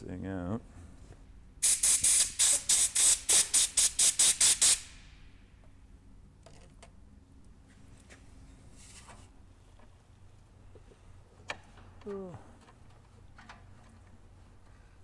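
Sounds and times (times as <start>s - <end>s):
air blow gun hissing bursts: 1.6s - 5.0s.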